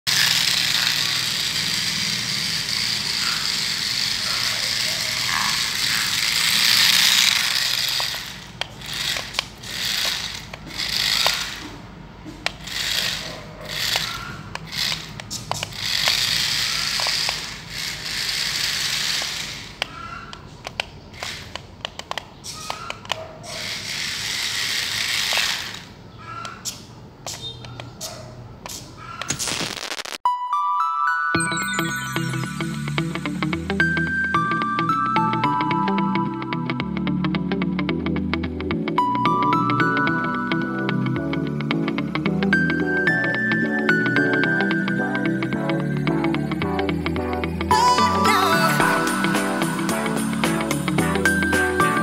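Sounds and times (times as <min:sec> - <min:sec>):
small electric motors whirring: 0:00.1 - 0:20.1, 0:20.7 - 0:26.0
toy car chassis rattling: 0:00.1 - 0:29.2.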